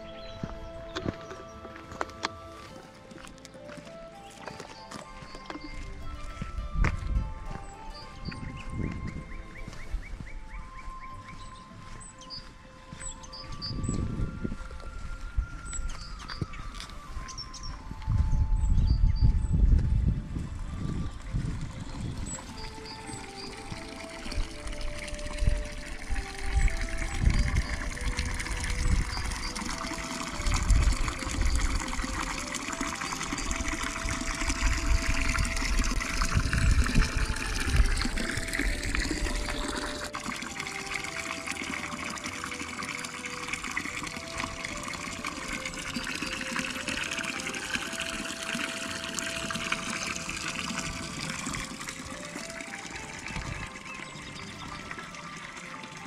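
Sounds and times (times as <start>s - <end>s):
wind rumble on microphone: 5.8s - 11.4s, 13.2s - 22.8s, 24.3s - 29.8s, 30.4s - 32.0s, 33.4s - 40.1s
fountain water splashing: 20.2s - 56.0s.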